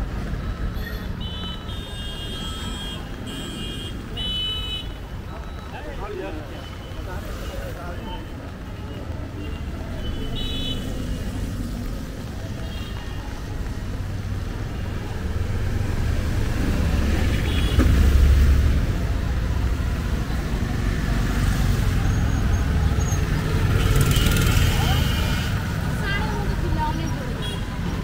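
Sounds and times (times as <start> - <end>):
motorcycles passing: 0.0 - 28.0
vehicles passing on wet road: 0.0 - 28.0.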